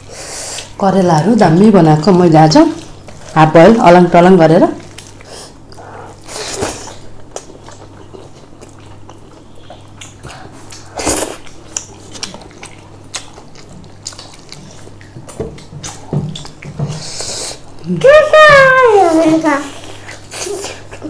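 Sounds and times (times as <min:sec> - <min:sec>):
wet chewing and lip-smacking: 0:04.8 - 0:17.8.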